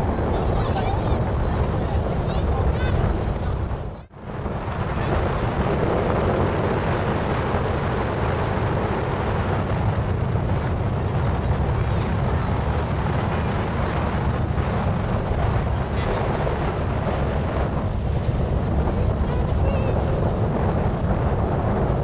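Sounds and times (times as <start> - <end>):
boat engine rumble: 0.0 - 22.0
wind buffeting microphone: 0.0 - 22.0.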